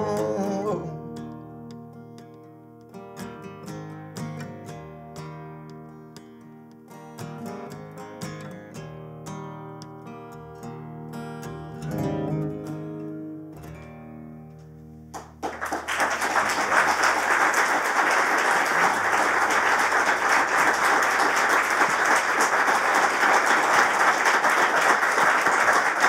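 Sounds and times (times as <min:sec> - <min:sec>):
acoustic guitar chord ringing: 0:10.2 - 0:15.1
audience applause: 0:15.2 - 0:26.0.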